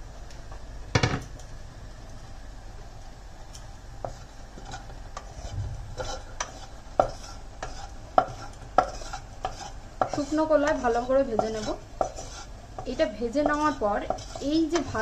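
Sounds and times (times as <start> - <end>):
spatula knocking pan: 4.0 - 15.0
spatula scraping pan: 4.0 - 15.0.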